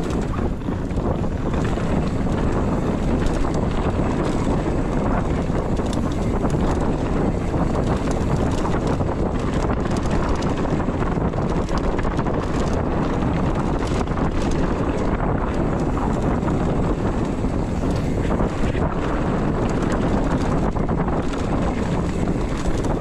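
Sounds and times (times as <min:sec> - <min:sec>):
bike clicks and rattles: 0:00.0 - 0:23.0
tyres rumbling on dirt: 0:00.0 - 0:23.0
wind buffeting microphone: 0:00.0 - 0:23.0.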